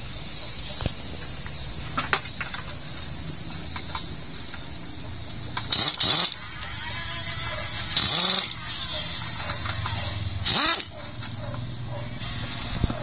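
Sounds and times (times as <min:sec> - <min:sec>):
air impact wrench bursts: 0:05.6 - 0:11.0.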